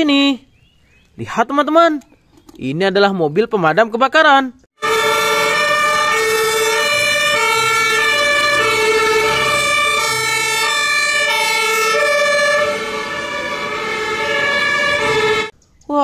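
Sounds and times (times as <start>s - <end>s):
two-tone sirens: 4.8s - 15.5s.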